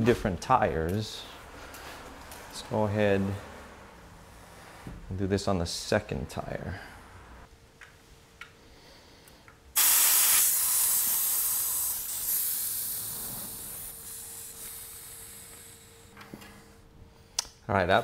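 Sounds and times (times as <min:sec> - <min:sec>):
air hissing from tire valve: 0:09.8 - 0:16.7.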